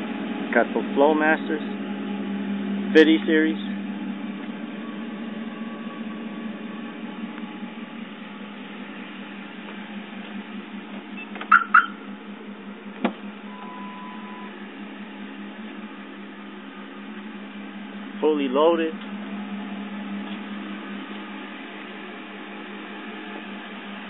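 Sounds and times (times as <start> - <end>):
truck engine idling: 0.0 - 24.0
truck door click: 13.0 - 13.2
steady beep: 13.5 - 14.6.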